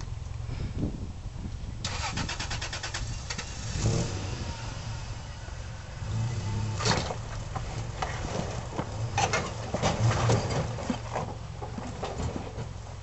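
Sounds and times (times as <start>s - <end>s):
truck engine running low: 0.0s - 13.0s
tyres knocking and crunching on rocks: 6.8s - 12.8s.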